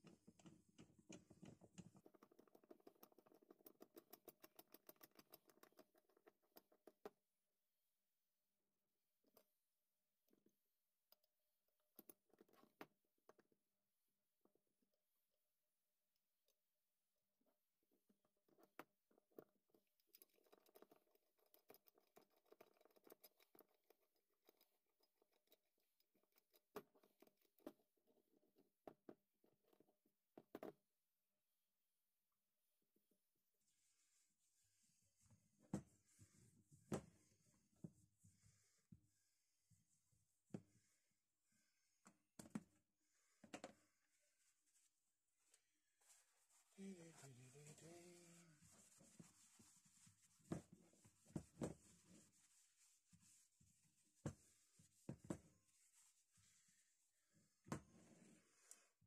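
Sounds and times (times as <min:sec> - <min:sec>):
faint wrench clicks and scrapes: 0:00.4 - 0:07.0, 0:18.5 - 0:27.7.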